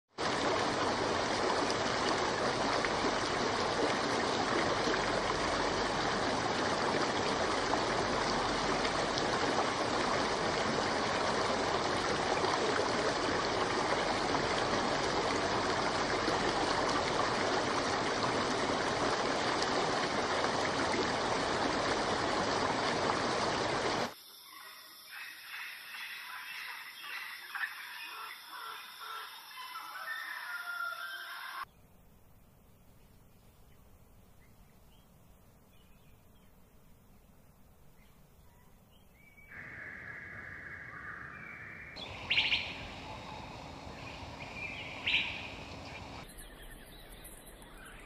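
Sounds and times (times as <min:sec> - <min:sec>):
running water: 0:00.1 - 0:24.2, 0:42.0 - 0:48.0.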